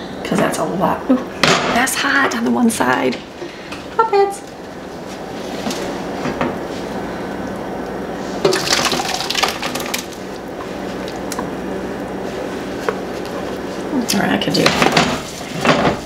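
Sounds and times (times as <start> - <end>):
thick soup pouring: 8.4 - 13.6.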